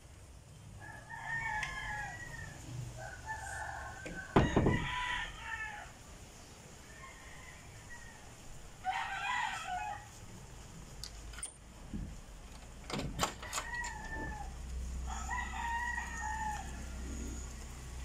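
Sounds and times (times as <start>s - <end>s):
rooster crowing: 0.8s - 6.0s, 6.8s - 10.2s, 13.4s - 18.0s
door latch clicks and knocks: 11.4s - 14.3s.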